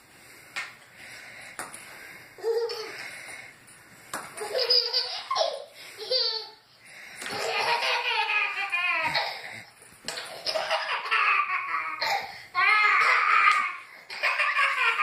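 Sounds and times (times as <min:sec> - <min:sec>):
baby laughing: 0:02.4 - 0:03.1, 0:04.4 - 0:06.6, 0:07.3 - 0:15.0.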